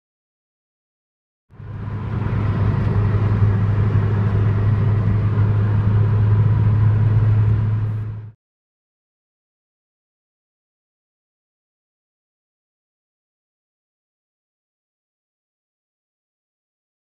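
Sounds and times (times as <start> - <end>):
car engine drone: 1.5 - 8.4
road noise inside car: 1.6 - 8.4.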